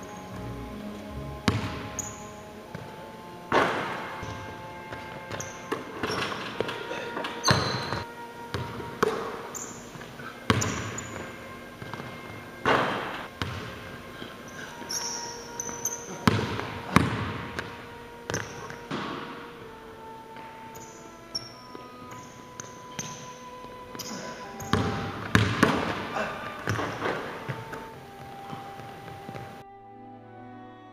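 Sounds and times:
basketball bouncing on hardwood: 1.5s - 1.8s, 10.5s - 11.0s, 12.7s - 13.7s, 24.6s - 26.0s, 26.6s - 27.6s.

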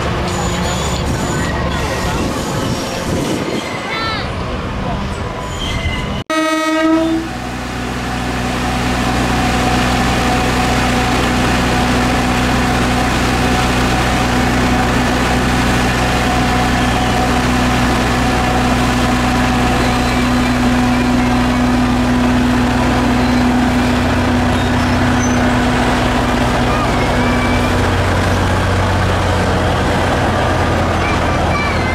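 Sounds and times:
diesel locomotive engine running: 0.0s - 5.4s, 6.3s - 31.9s
train horn blast: 6.3s - 7.4s.

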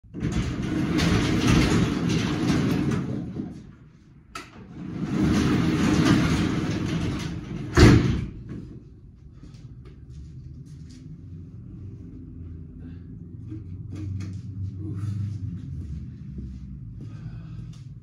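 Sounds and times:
large door rattling along track: 0.0s - 8.8s
door shutting bang: 4.9s - 8.6s.

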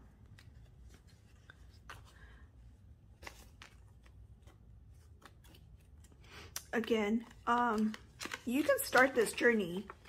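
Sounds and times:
banknotes rustling: 3.1s - 10.0s.

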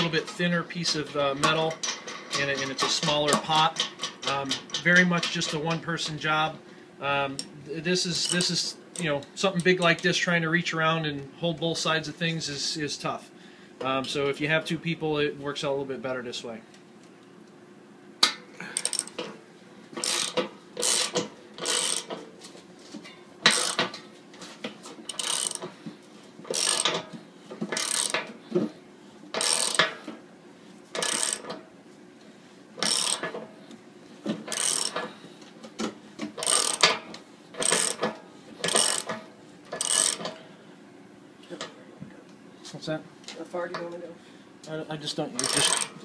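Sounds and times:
ratchet wrench clicking: 8.2s - 8.5s, 18.2s - 19.2s, 20.0s - 22.1s, 23.5s - 23.9s, 25.1s - 25.7s, 26.5s - 27.0s, 27.7s - 28.3s, 29.4s - 30.0s, 31.0s - 31.6s, 32.8s - 33.4s, 34.5s - 35.1s, 36.4s - 37.0s, 37.6s - 40.3s, 45.4s - 46.0s.

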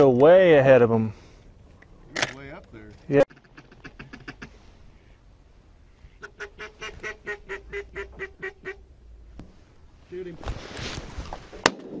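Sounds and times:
goose honks: 6.0s - 8.9s.

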